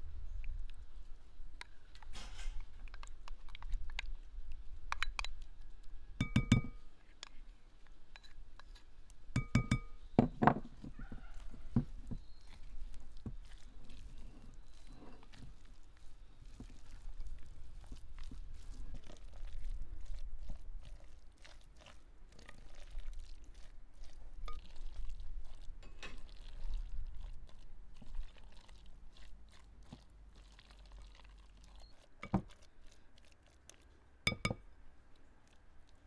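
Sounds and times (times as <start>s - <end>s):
spoon clinking on bowl: 6.2s - 6.8s, 9.4s - 10.0s, 34.3s - 34.6s
spoon scraping ceramic bowl: 9.4s - 10.0s, 25.8s - 26.4s, 32.2s - 32.6s, 34.3s - 34.6s
salad squishing as mixed: 11.0s - 36.0s.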